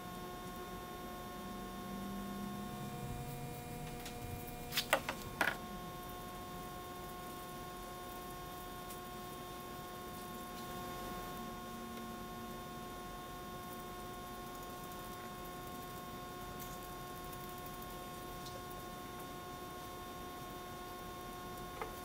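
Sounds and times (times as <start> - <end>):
steady electrical hum: 0.0 - 22.0
plastic bottles clicking and tapping: 4.8 - 5.6.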